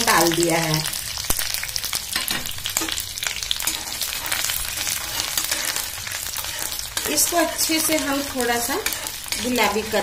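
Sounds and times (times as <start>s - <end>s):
ginger and garlic sizzling in oil: 0.0s - 10.0s
metal spoon stirring in wok: 2.2s - 10.0s.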